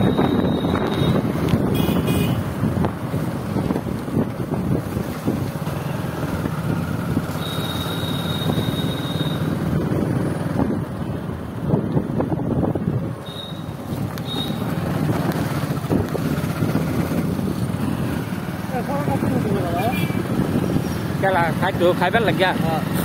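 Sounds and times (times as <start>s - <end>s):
wind buffeting microphone: 0.0s - 7.3s, 9.6s - 13.2s, 13.8s - 18.5s, 19.1s - 21.2s
vehicle engine and road noise: 0.0s - 23.0s.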